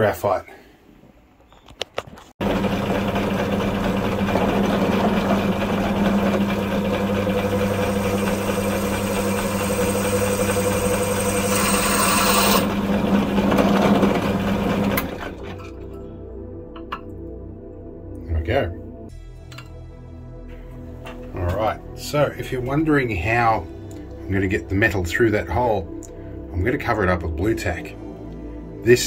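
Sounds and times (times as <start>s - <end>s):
drill press drilling: 2.4s - 15.6s.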